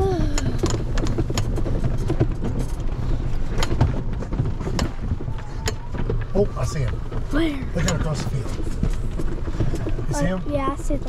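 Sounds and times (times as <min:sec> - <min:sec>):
golf cart rumbling: 0:00.0 - 0:11.0
knocks and rattles: 0:00.0 - 0:11.0.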